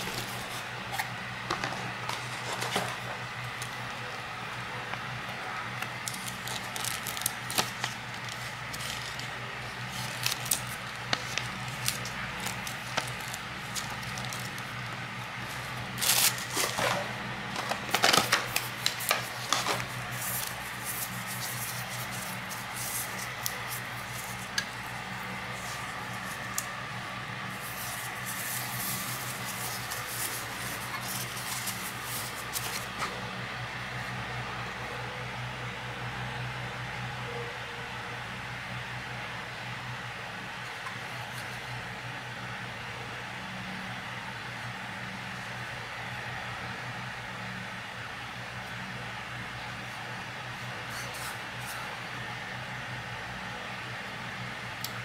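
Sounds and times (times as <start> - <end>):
packaging rustling and crinkling: 6.0 - 14.7, 15.4 - 26.8, 27.5 - 33.0.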